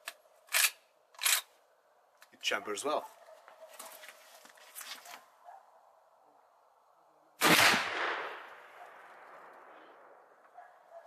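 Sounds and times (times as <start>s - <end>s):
rifle shot with echo: 7.4s - 10.4s.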